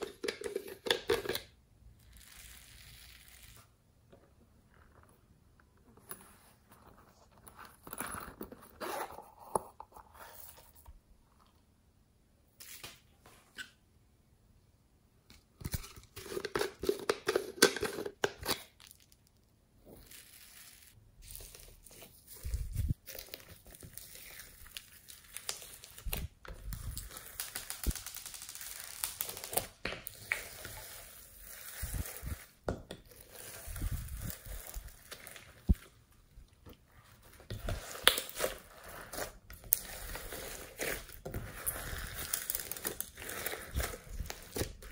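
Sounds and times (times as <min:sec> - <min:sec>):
foam beads pouring into dish: 0:20.0 - 0:21.0
slime crackling and popping: 0:24.5 - 0:30.6.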